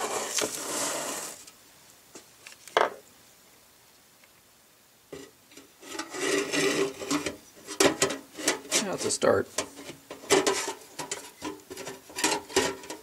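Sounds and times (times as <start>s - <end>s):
metal rubbing and scraping: 0.0s - 1.4s, 5.2s - 13.0s.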